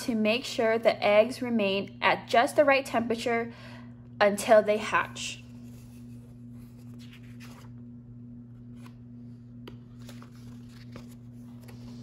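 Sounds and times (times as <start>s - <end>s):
steady low hum: 0.0s - 12.0s
paper page rustling: 5.5s - 7.8s, 8.6s - 12.0s.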